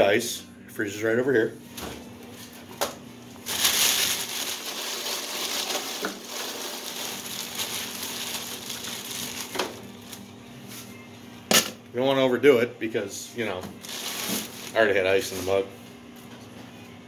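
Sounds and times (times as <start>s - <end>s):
plastic bag rustling: 3.4s - 10.2s, 13.8s - 15.6s
ice cubes crunching and clinking: 3.5s - 9.6s.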